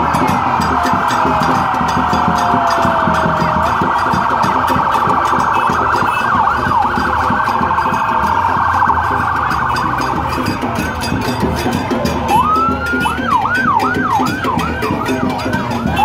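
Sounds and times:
police sirens wailing: 0:00.0 - 0:16.0.

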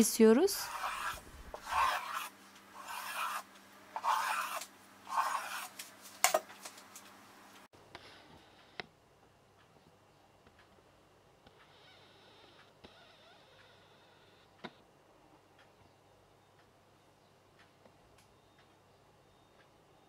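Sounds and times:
knife scraping through dough: 0:00.6 - 0:06.4.

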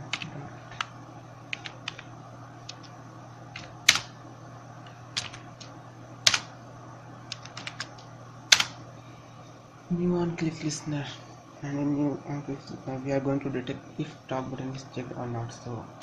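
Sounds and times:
low steady hum: 0:00.0 - 0:16.0
keyboard typing: 0:00.1 - 0:00.9, 0:01.5 - 0:02.1, 0:02.7 - 0:02.9, 0:03.5 - 0:04.1, 0:05.2 - 0:06.5, 0:07.3 - 0:08.8.

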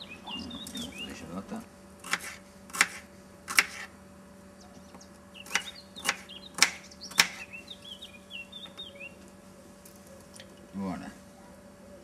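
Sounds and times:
small bird chirping: 0:00.0 - 0:01.3, 0:04.6 - 0:09.2.

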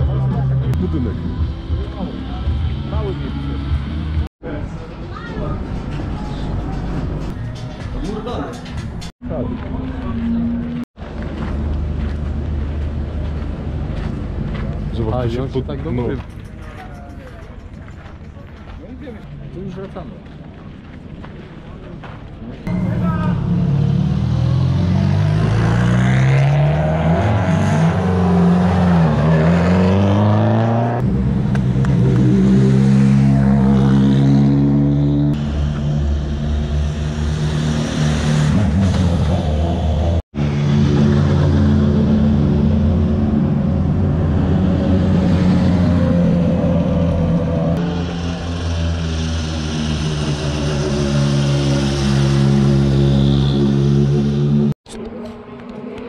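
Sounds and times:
rally car engines droning: 0:22.7 - 0:56.0.

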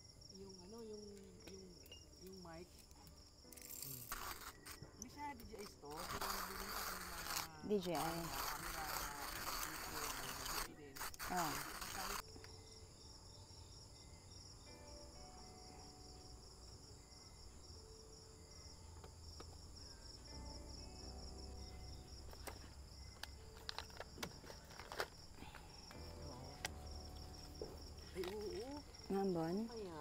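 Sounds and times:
insects trilling: 0:00.0 - 0:30.0.

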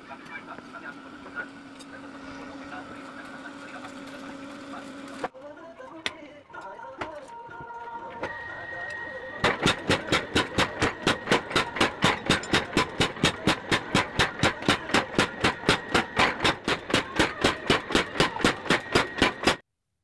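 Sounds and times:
power hammer pounding hot steel: 0:09.4 - 0:19.6.

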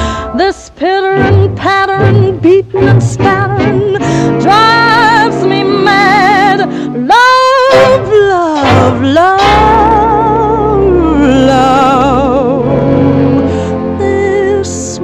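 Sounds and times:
woman singing a slow ballad: 0:00.2 - 0:15.0
dance band playing: 0:07.7 - 0:10.8.

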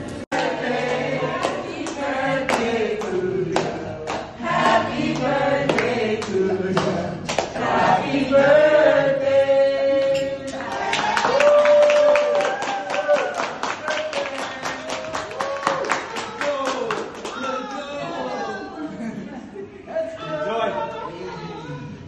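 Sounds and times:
group singing in chorus: 0:00.2 - 0:11.2
hand claps: 0:00.4 - 0:07.6.

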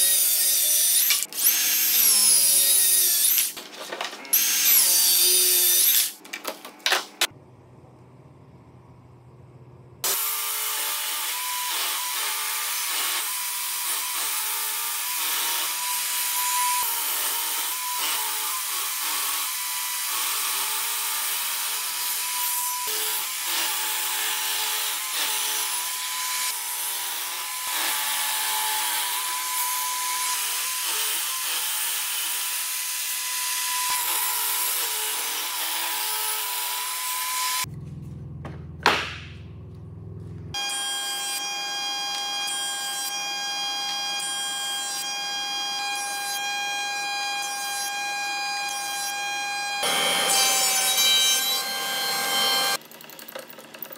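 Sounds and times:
table saw cutting wood: 0:00.0 - 0:03.6, 0:04.2 - 0:06.2, 0:10.0 - 0:37.7, 0:40.5 - 0:53.8
saw blade whine: 0:40.6 - 0:52.8.

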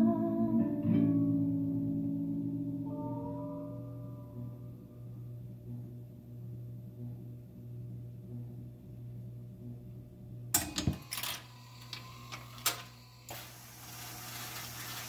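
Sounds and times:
steady hum: 0:01.6 - 0:15.0
mechanism whirring: 0:05.6 - 0:15.0
jukebox mechanism clunks and clicks: 0:10.6 - 0:12.9.

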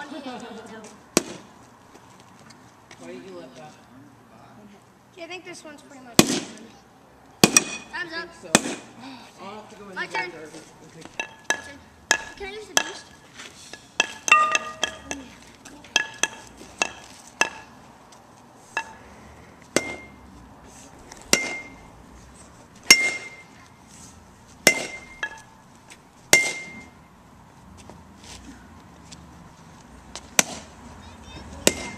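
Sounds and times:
bat striking pumpkin pieces: 0:08.5 - 0:08.9.

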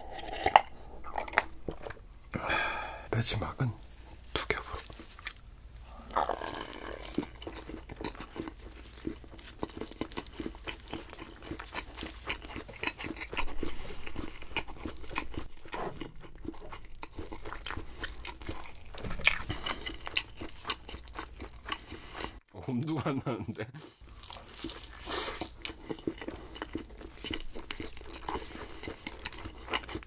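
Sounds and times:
pizza chewing crunches: 0:04.5 - 0:22.4, 0:24.0 - 0:30.0.

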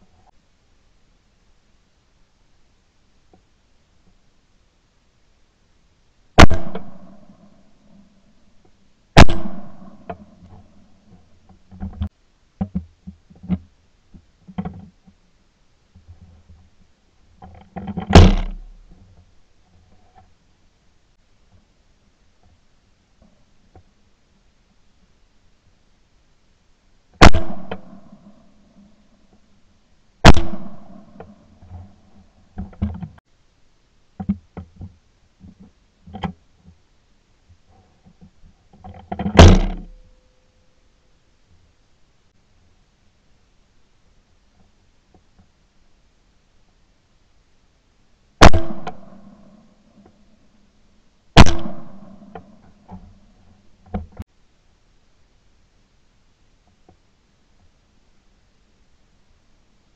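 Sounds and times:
loud shotgun shot: 0:06.4 - 0:07.4, 0:09.2 - 0:10.3, 0:18.1 - 0:18.6, 0:27.2 - 0:28.4, 0:30.2 - 0:31.3, 0:39.4 - 0:39.9, 0:48.4 - 0:49.4, 0:51.4 - 0:52.5
shotgun handling clicks and knocks: 0:06.4 - 0:07.5, 0:08.6 - 0:13.7, 0:17.4 - 0:19.0, 0:38.0 - 0:40.0, 0:48.4 - 0:49.4
gun handling clicks and knocks: 0:17.4 - 0:19.2, 0:38.0 - 0:40.0, 0:48.4 - 0:49.1.

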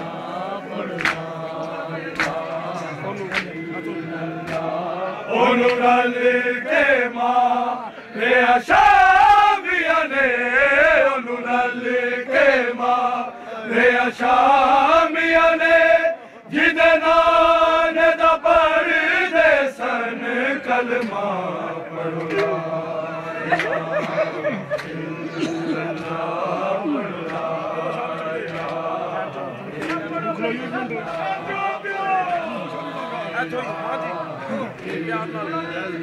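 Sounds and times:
men chanting a lament: 0:00.0 - 0:36.0.

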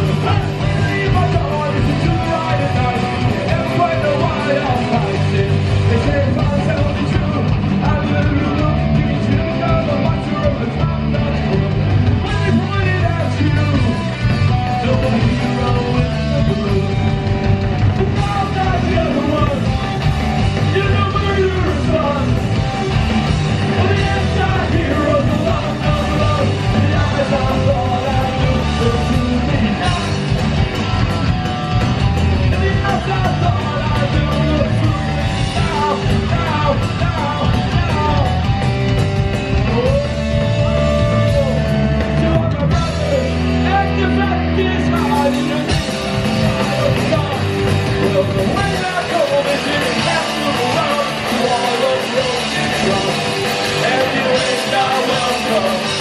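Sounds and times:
bass guitar: 0:00.0 - 0:56.0
drums: 0:00.0 - 0:56.0
electric guitars: 0:00.0 - 0:56.0
person singing into microphone: 0:32.3 - 0:38.4, 0:46.5 - 0:56.0.

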